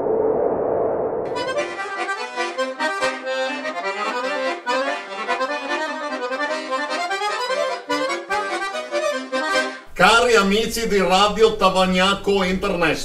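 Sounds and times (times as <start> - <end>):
lively instrumental jingle: 1.3 - 10.3.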